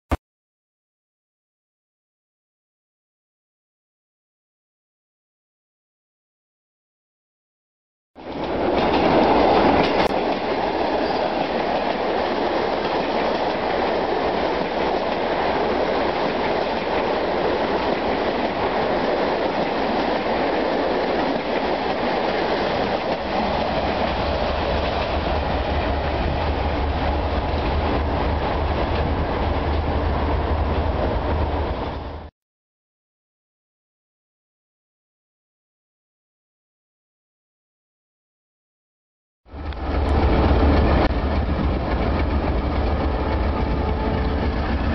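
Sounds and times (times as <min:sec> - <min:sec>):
wheels clacking over rail joints: 0:08.2 - 0:30.0
train coaches rolling past: 0:08.2 - 0:32.3, 0:39.5 - 0:44.9.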